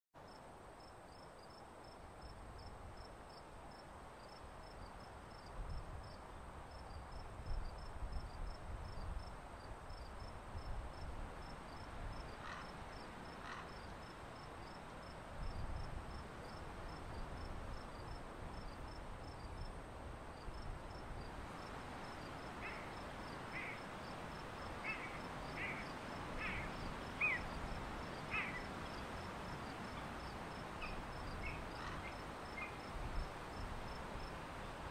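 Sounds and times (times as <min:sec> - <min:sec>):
insect chirping: 0:20.4 - 0:34.7.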